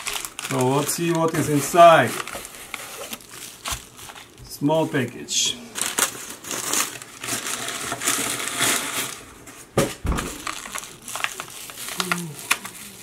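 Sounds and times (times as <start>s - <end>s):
bubble wrap crinkling: 0.0s - 13.0s
dull thump: 9.8s - 10.5s.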